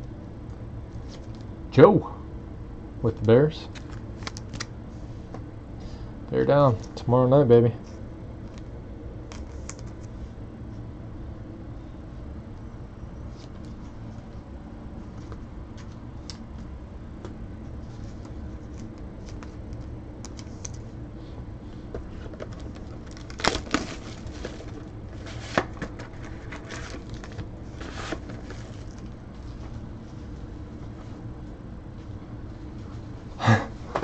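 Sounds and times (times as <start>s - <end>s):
low room hum: 0.0s - 34.0s
foil pack crinkling: 22.3s - 29.6s.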